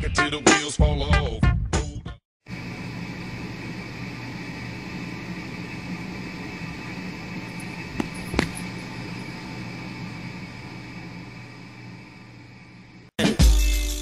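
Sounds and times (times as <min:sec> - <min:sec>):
room hum and hiss: 0:02.5 - 0:13.1.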